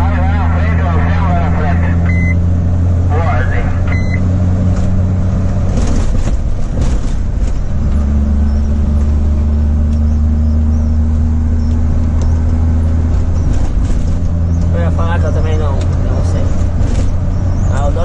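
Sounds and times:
road noise: 0.0s - 18.0s
truck engine droning: 0.0s - 18.0s.

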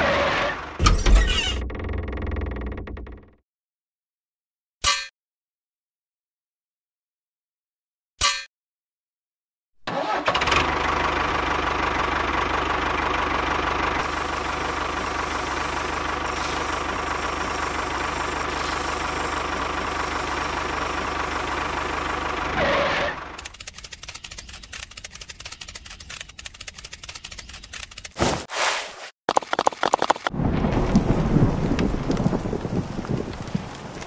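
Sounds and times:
engine running: 9.9s - 28.0s.

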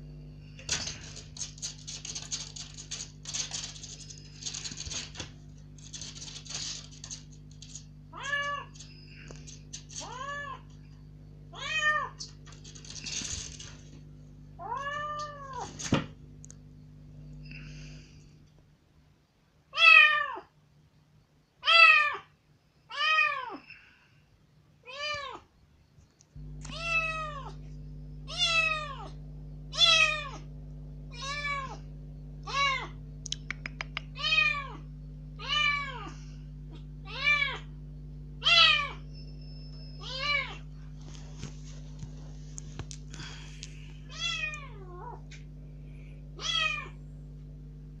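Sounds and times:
kitten meowing loudly: 19.8s - 20.5s, 29.7s - 30.4s, 38.4s - 39.0s, 44.1s - 45.2s, 46.4s - 47.0s.

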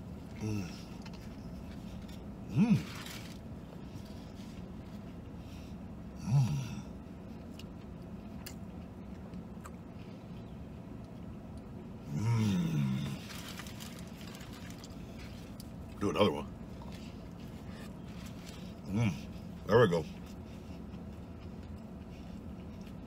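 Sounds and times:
man chewing: 0.0s - 16.0s, 16.6s - 23.0s
steady low hum: 0.0s - 23.0s
man humming mmm: 6.2s - 7.0s, 12.0s - 13.2s.

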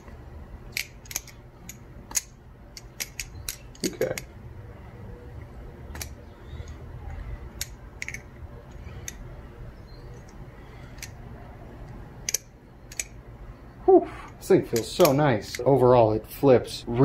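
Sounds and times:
low background rumble: 0.0s - 17.0s
butterfly knife metallic clicks: 0.7s - 4.3s, 14.7s - 15.7s.

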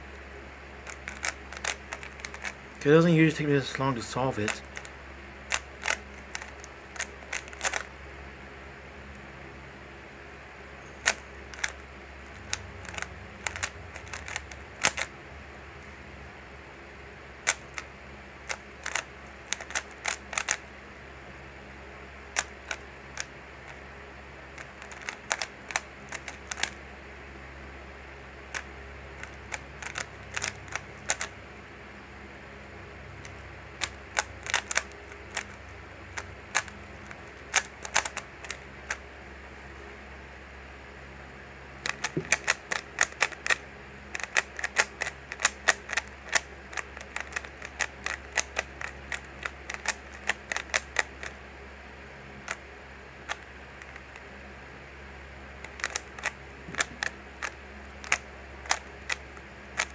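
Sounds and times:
steady low hum: 0.0s - 59.9s
puzzle cube plastic clicks: 0.8s - 4.9s, 5.5s - 7.9s, 11.0s - 15.1s, 17.4s - 20.7s, 22.3s - 23.8s, 24.5s - 26.8s, 28.5s - 31.4s, 33.2s - 39.0s, 41.8s - 51.3s, 52.4s - 54.3s, 55.6s - 59.9s.

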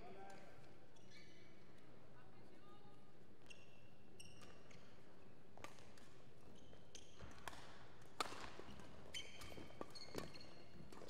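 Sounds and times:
shoes squeaking on court: 8.6s - 11.0s.

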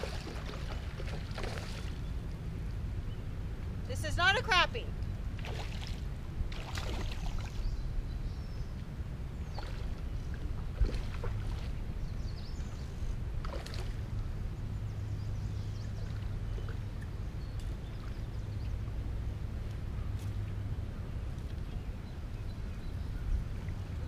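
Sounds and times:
wind buffeting microphone: 4.9s - 24.0s.

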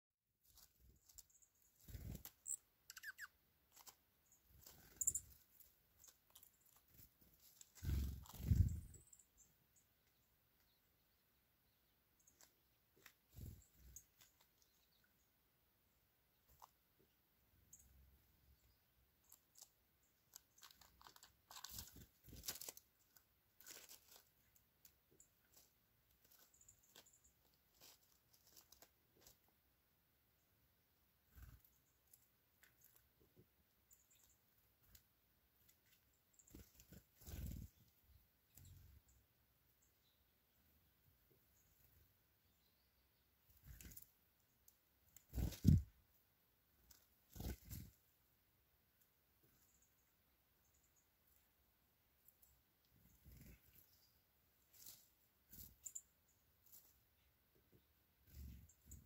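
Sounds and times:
quick lower chirps: 2.4s - 3.4s
bird scratching in fallen leaves: 20.6s - 22.8s, 23.6s - 24.3s, 27.7s - 29.4s.

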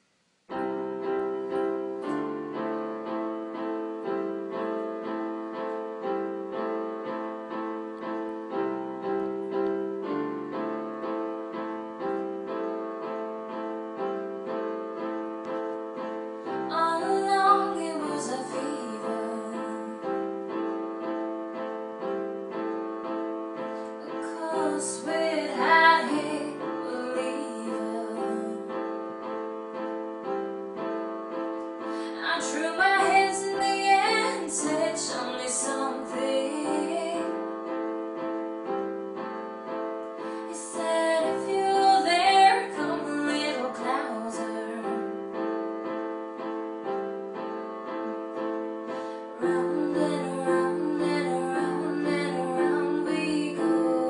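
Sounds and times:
piano playing chords: 0.0s - 54.0s
person singing: 16.6s - 20.3s, 24.0s - 28.8s, 31.9s - 37.6s, 40.2s - 45.2s, 49.4s - 54.0s.

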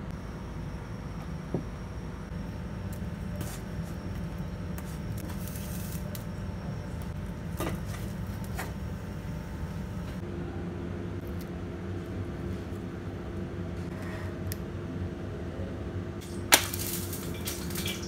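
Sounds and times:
faint steady hum: 0.0s - 18.0s
gas burner rumble: 0.0s - 18.0s
charring skin crackling: 16.2s - 18.0s.

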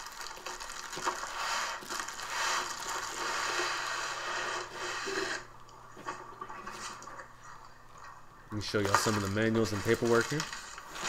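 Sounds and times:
plastic rustling: 0.0s - 5.4s, 8.6s - 11.0s
cardboard scraping: 9.0s - 11.0s.

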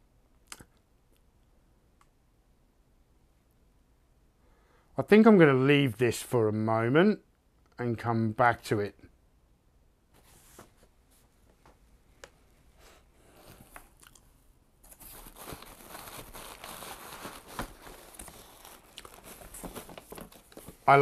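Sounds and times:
paper and packing material rustling: 14.8s - 21.0s.

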